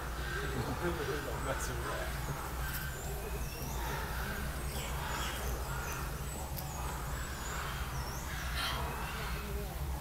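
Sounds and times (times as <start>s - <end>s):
birds chirping: 0.0s - 10.0s
faint murmur of voices: 0.0s - 10.0s
steady low hum: 0.0s - 10.0s.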